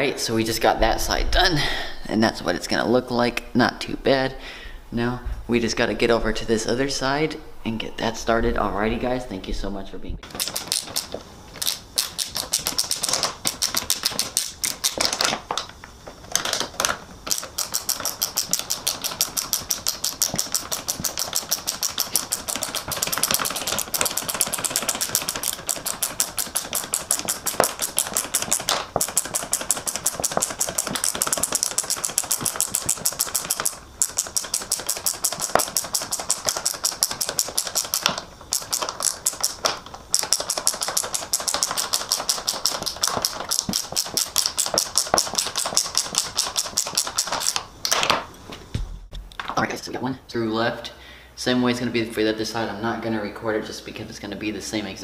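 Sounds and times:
ratchet wrench clicking: 10.2s - 15.4s, 16.4s - 47.7s.

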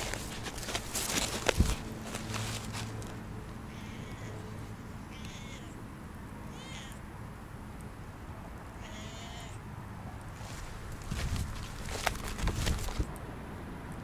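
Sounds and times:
cat meowing: 3.7s - 4.5s, 5.1s - 5.8s, 6.5s - 7.0s, 8.8s - 9.6s.

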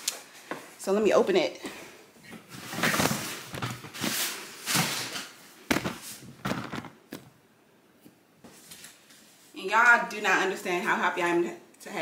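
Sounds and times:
camera handling rustles and knocks: 5.7s - 7.3s.

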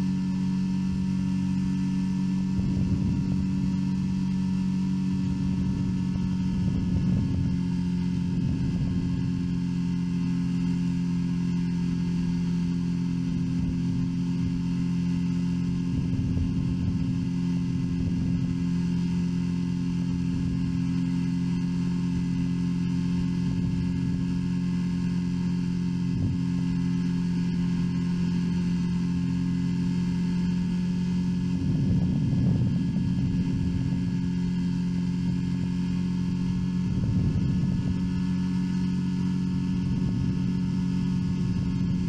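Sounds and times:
aircraft engine droning: 0.0s - 42.0s
wind buffeting microphone: 2.4s - 9.7s, 15.8s - 18.6s, 31.2s - 38.6s, 39.4s - 42.0s.

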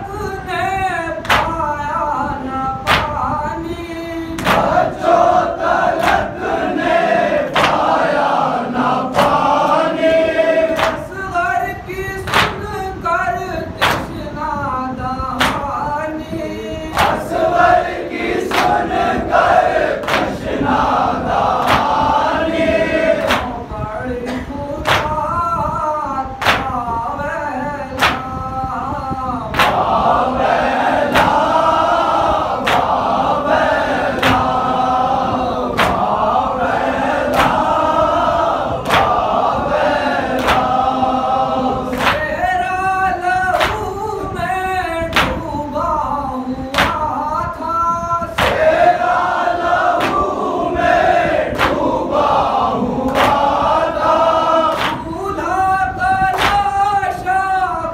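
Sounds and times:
men chanting a lament: 0.0s - 57.9s
chest-beating slaps: 1.2s - 1.6s, 2.9s - 3.3s, 4.4s - 8.3s, 9.1s - 10.1s, 10.7s - 11.1s, 12.3s - 12.7s, 13.8s - 14.2s, 15.4s - 15.8s, 17.0s - 17.4s, 18.2s - 22.1s, 23.2s - 23.6s, 24.3s - 25.2s, 26.4s - 26.8s, 28.0s - 28.4s, 29.5s - 34.8s, 35.7s - 36.2s, 37.3s - 37.8s, 38.8s - 40.9s, 41.9s - 42.3s, 43.5s - 43.9s, 45.1s - 45.5s, 46.8s - 47.1s, 48.4s - 49.2s, 49.9s - 50.4s, 51.5s - 51.9s, 53.1s - 55.2s, 56.3s - 56.7s.

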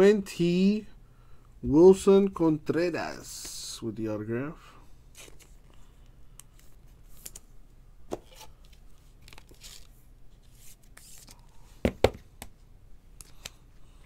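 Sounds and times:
cards rustling: 5.1s - 7.5s, 8.1s - 11.7s.

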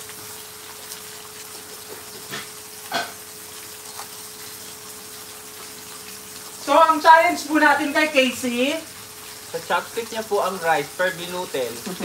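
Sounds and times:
faint steady hum: 0.0s - 12.0s
meat sizzling on a grill: 0.0s - 12.0s.

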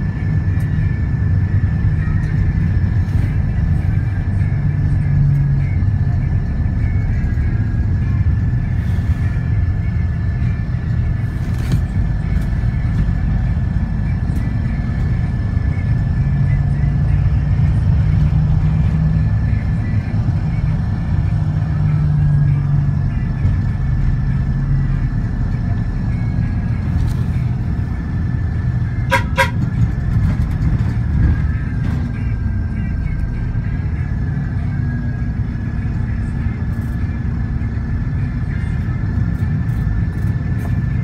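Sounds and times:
vehicle rumbling from inside: 0.0s - 41.0s
vehicle horn toots: 29.0s - 29.7s.

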